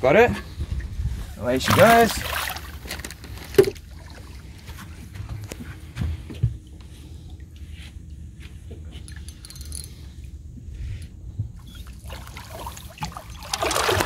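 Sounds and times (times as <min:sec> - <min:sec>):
low steady rumble: 0:00.0 - 0:14.0
faint water sounds: 0:00.2 - 0:07.8, 0:08.8 - 0:14.0
fish splashing into net: 0:01.6 - 0:02.9, 0:12.5 - 0:14.0.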